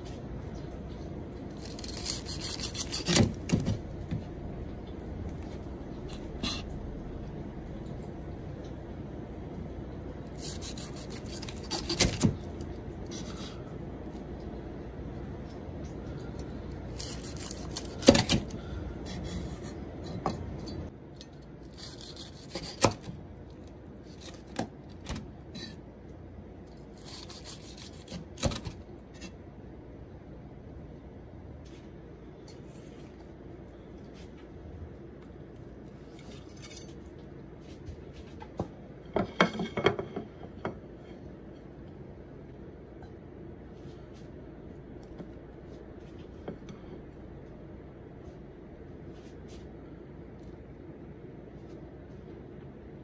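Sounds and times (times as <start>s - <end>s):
knife crunching through fried chicken: 1.5s - 3.7s, 10.3s - 13.5s, 16.9s - 18.5s, 21.6s - 23.2s, 26.8s - 28.8s.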